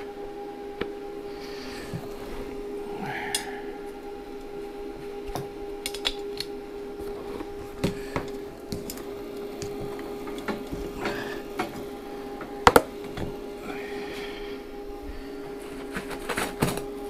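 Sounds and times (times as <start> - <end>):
stick welder humming: 0.0 - 17.0
clicks and knocks of electrode holder: 5.3 - 6.5.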